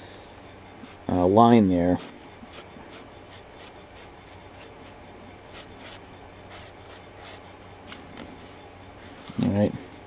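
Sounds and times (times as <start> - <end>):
faint low hum: 0.0 - 10.0
pencil scratching on paper: 2.0 - 8.0.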